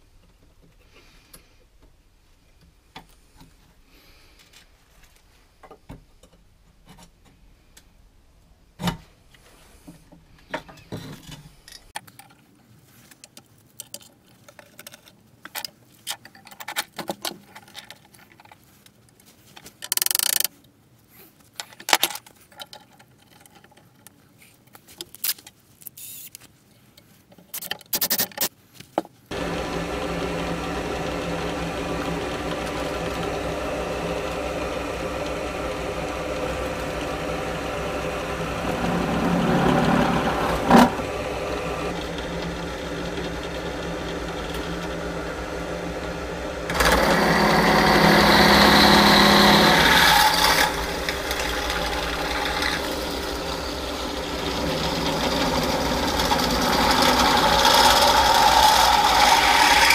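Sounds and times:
steel parts clicking and knocking: 19.6 - 20.6
pillar drill running: 29.3 - 59.9.

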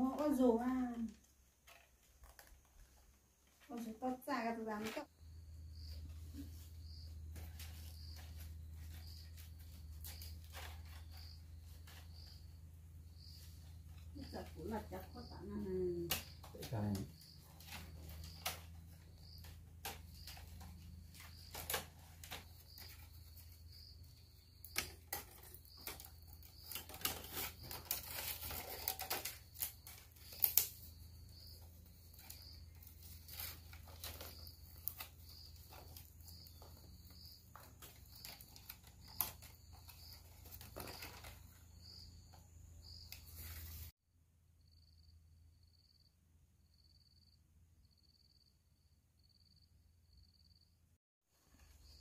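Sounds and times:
clicks and scrapes of hand work: 24.6 - 31.0, 31.6 - 41.8.

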